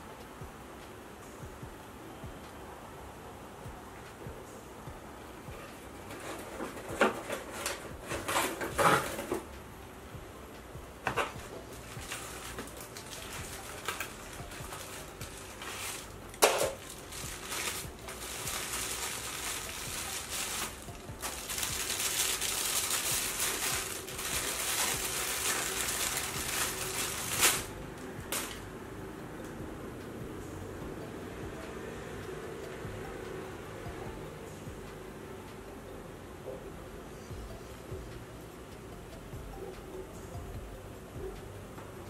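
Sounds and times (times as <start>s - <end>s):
bubble wrap bag crinkling: 11.2s - 28.6s.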